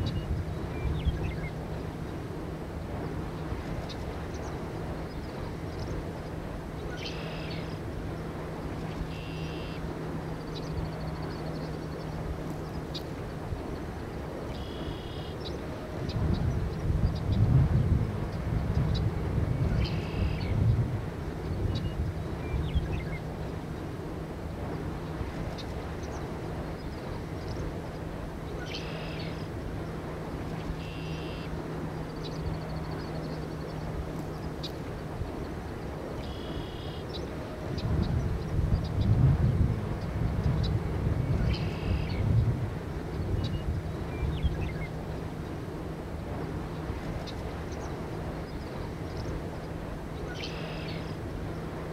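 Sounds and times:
low hum: 0:00.0 - 0:51.9
wind: 0:00.0 - 0:51.9
bird buzzy call: 0:09.1 - 0:09.9, 0:14.5 - 0:15.5, 0:30.7 - 0:31.6, 0:36.2 - 0:37.2.

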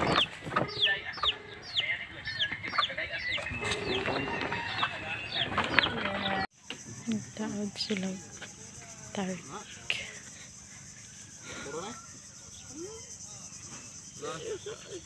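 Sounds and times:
chicks peeping: 0:00.0 - 0:06.5.

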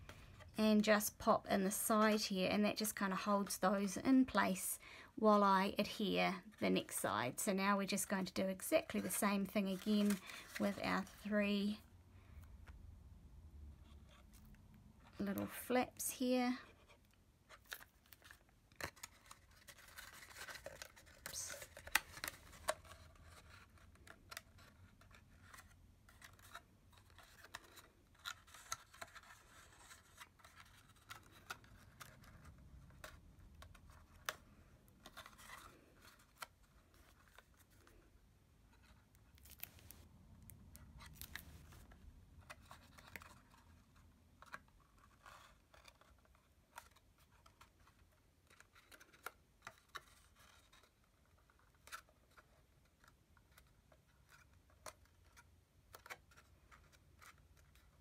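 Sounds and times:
cardstock rustling and clicking: 0:08.8 - 0:11.3, 0:16.8 - 0:38.1, 0:38.7 - 0:58.0.

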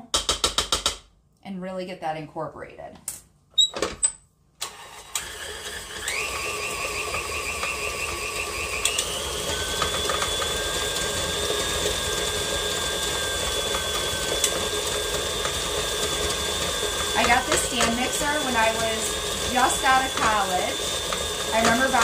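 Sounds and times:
stand mixer motor whining: 0:04.6 - 0:22.0.

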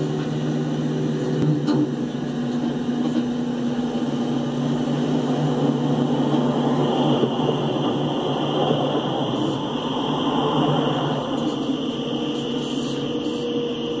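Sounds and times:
diesel engine droning: 0:00.0 - 0:14.0.

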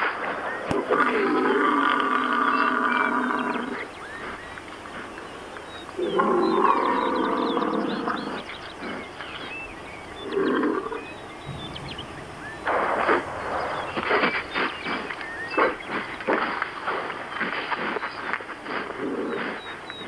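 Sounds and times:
bison calling: 0:00.8 - 0:17.3
faint bird chirps: 0:02.4 - 0:16.5.

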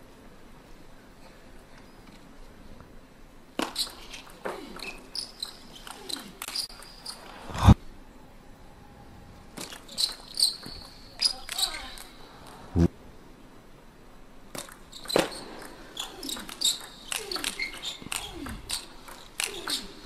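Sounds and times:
shoes squeaking on floor: 0:03.6 - 0:07.8, 0:09.6 - 0:11.8, 0:14.9 - 0:18.9.

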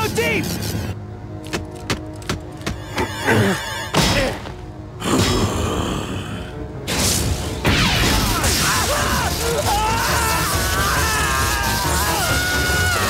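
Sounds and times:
dramatic score music: 0:00.0 - 0:13.0
electric zapping: 0:06.9 - 0:13.0.

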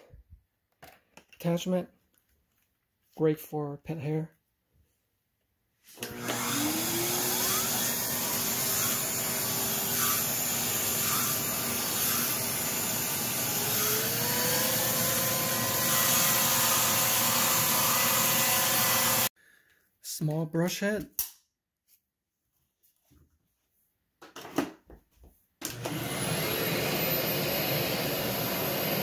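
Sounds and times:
vacuum cleaner running: 0:06.0 - 0:19.3, 0:25.6 - 0:29.0.

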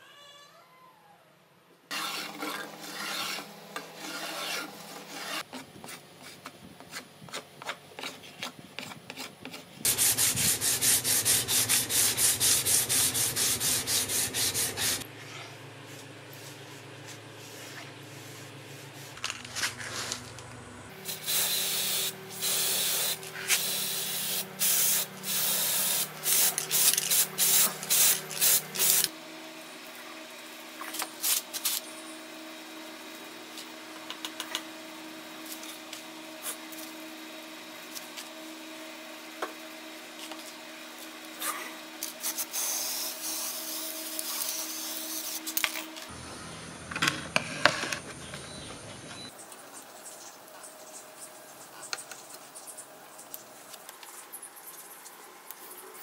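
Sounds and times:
spray paint can hissing: 0:09.9 - 0:15.0, 0:21.0 - 0:29.1, 0:42.2 - 0:45.4.

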